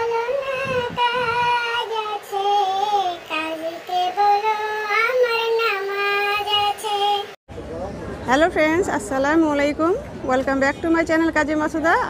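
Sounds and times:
child-like voice singing: 0.0 - 7.3.

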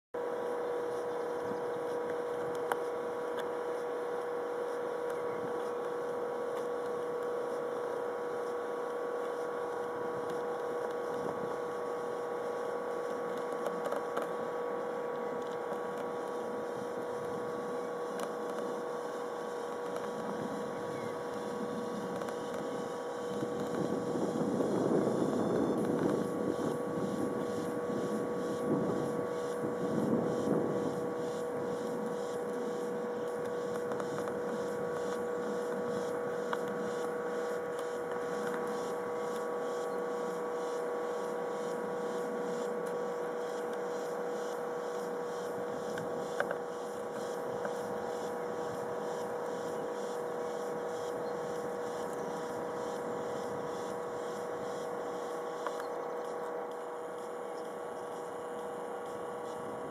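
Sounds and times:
jet engine whine: 0.2 - 59.9.

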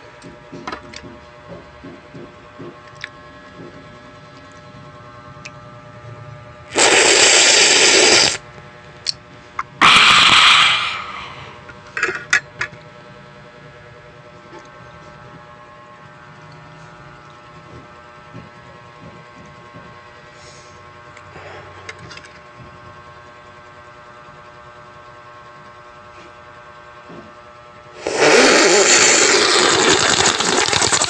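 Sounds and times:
loud bursts of noise: 6.7 - 8.4, 9.8 - 11.6, 27.9 - 31.0.

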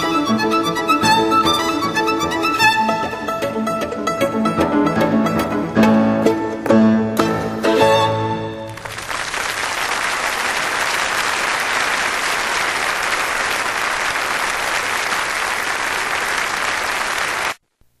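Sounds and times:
audience applauding: 8.6 - 17.6.

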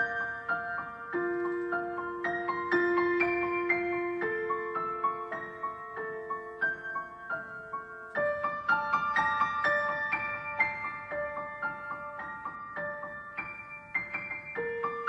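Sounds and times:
piano melody: 0.0 - 15.0.

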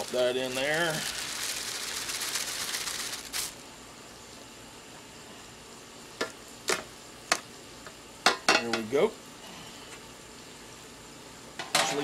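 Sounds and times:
plastic bag crinkling: 0.0 - 3.6
boiling pot hissing: 0.0 - 8.2.

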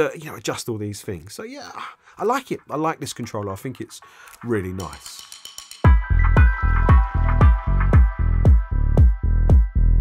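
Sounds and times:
electronic music with kick drum: 2.4 - 10.0.

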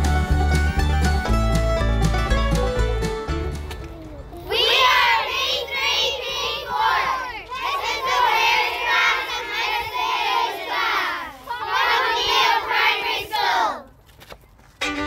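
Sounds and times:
children calling out in unison: 3.9 - 13.9.

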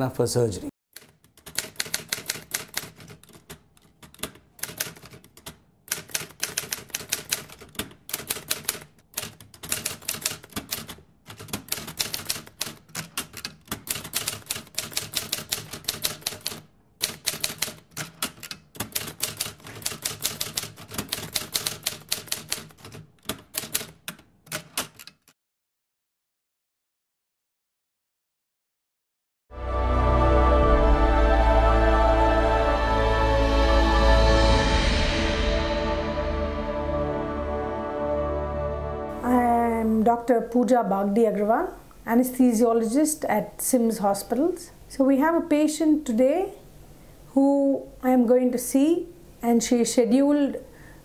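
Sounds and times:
keyboard typing clicks: 1.0 - 25.4.

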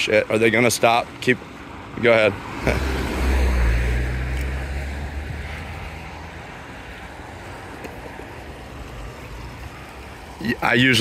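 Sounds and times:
vehicle engine and tyre rumble: 0.0 - 11.0.

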